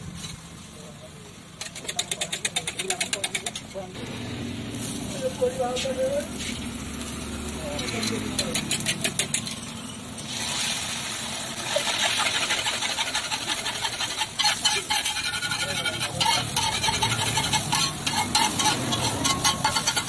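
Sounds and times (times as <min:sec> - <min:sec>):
metal spatula scraping a pan: 0:01.6 - 0:03.8, 0:07.6 - 0:10.3, 0:11.5 - 0:20.0
egg sizzling on a hot pan: 0:04.5 - 0:20.0.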